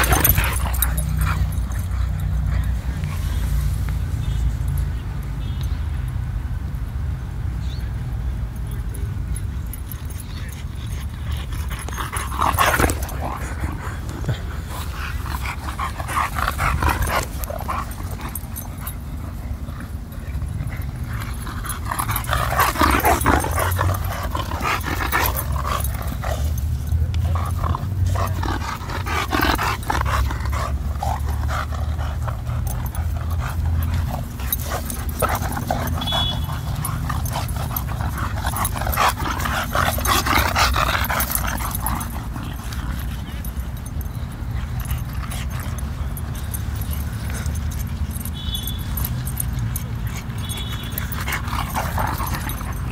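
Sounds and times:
dogs growling: 0:00.0 - 0:04.0, 0:09.4 - 0:52.9.

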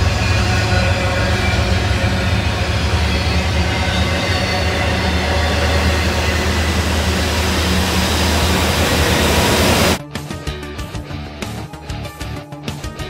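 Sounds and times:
freight train wheels rumbling on rail: 0:00.0 - 0:10.0
low hum: 0:00.0 - 0:10.0.

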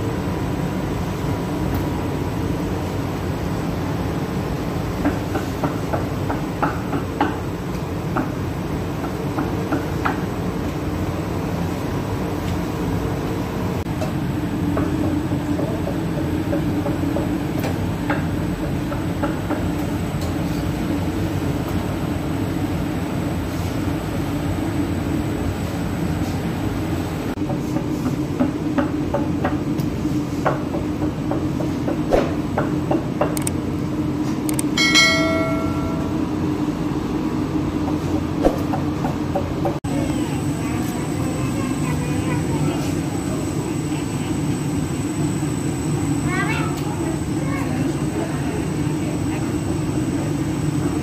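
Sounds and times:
oven machinery hum and rattle: 0:00.0 - 0:51.0
short bell-like chime: 0:34.8 - 0:36.5.

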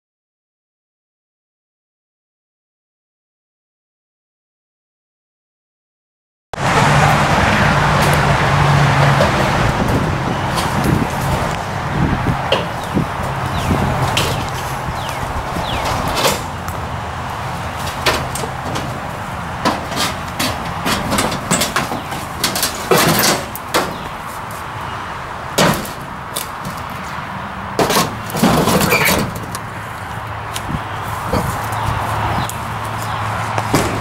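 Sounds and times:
metal scraping and grating: 0:12.4 - 0:16.7, 0:17.6 - 0:24.5, 0:27.8 - 0:29.6
sheet metal knocks and rattles: 0:12.5 - 0:14.6, 0:17.8 - 0:24.1, 0:25.6 - 0:26.0, 0:27.8 - 0:29.5.

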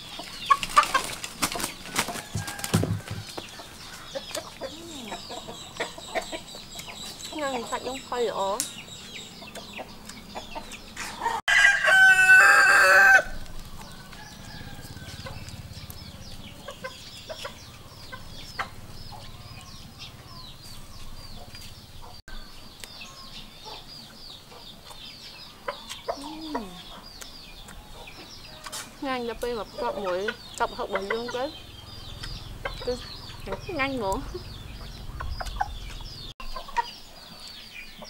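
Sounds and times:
rooster crowing: 0:02.1 - 0:03.3, 0:11.1 - 0:15.5.

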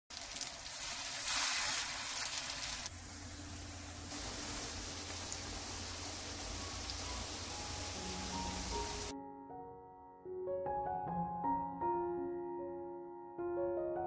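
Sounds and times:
patties sizzling in oil: 0:00.1 - 0:09.1.

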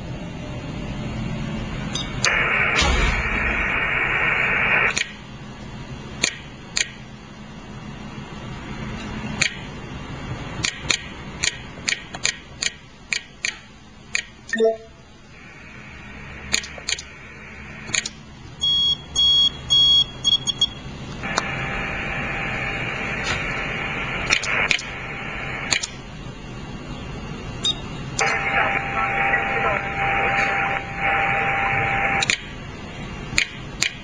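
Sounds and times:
radio static hiss: 0:02.2 - 0:05.0, 0:15.3 - 0:17.9, 0:21.2 - 0:25.8, 0:28.2 - 0:32.2.

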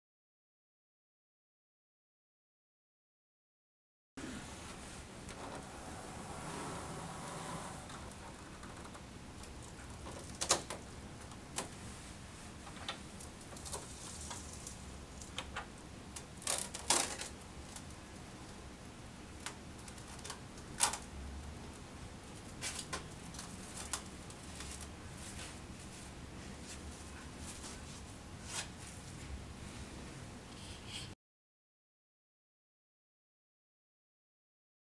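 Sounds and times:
cling film crinkling and snapping: 0:08.0 - 0:11.8, 0:12.7 - 0:18.6, 0:19.4 - 0:21.1, 0:21.7 - 0:25.0.

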